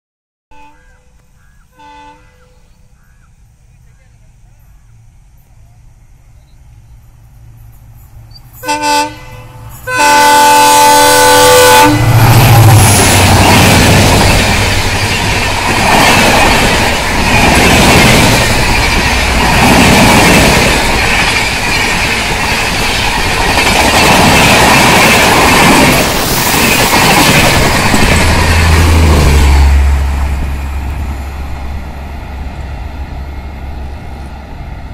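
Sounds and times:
train wheels clattering on track: 11.8 - 32.0.

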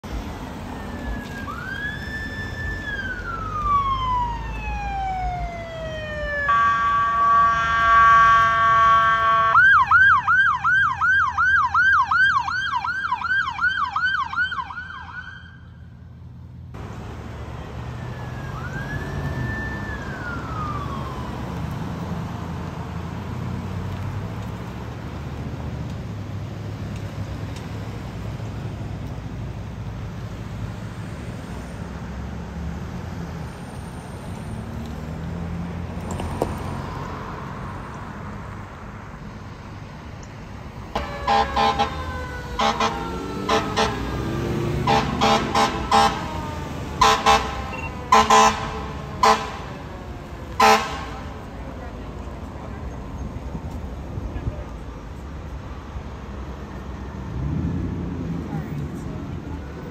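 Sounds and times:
passing traffic: 0.0 - 59.9
siren yelp: 0.6 - 15.8, 17.9 - 21.6, 41.0 - 49.9
electronic siren wailing: 0.7 - 15.6, 41.0 - 44.1
loud horn blast: 6.6 - 9.6, 41.0 - 42.0, 42.6 - 46.3, 47.0 - 49.7, 50.6 - 51.4.

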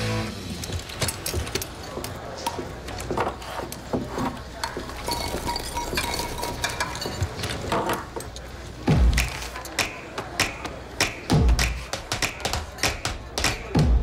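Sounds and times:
spoon and ceramic bowls clinking: 4.6 - 8.5.

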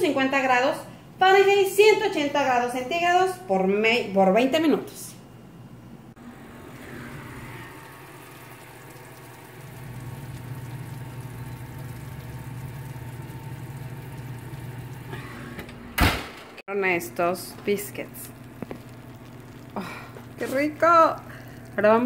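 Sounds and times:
oven humming: 5.6 - 22.0.

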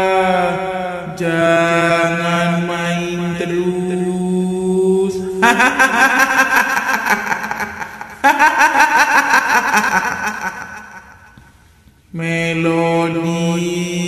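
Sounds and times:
droning chanted voice: 0.0 - 6.0, 12.2 - 14.0
woman's high-pitched cackling laugh: 5.4 - 11.2.

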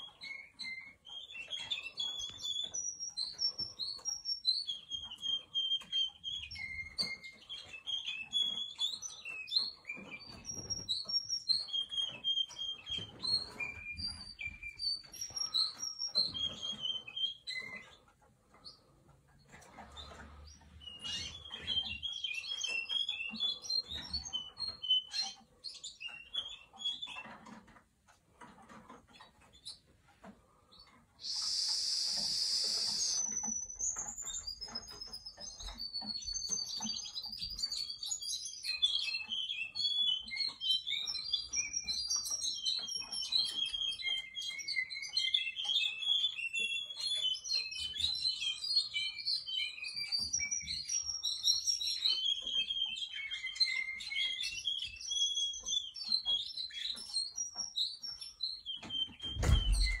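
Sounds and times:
canary singing: 0.0 - 60.0
low thump: 59.3 - 60.0.

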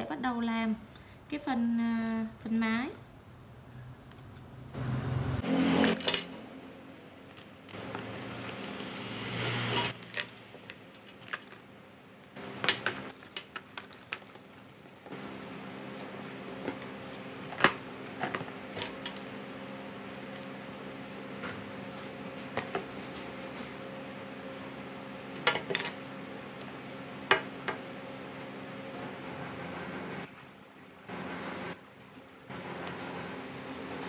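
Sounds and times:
plastic straws rustling: 13.1 - 15.1.

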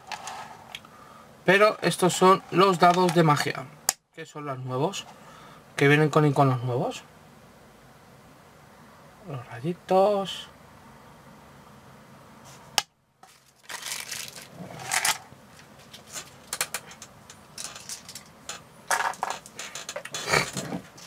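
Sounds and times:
packaging crinkling: 13.2 - 18.3.

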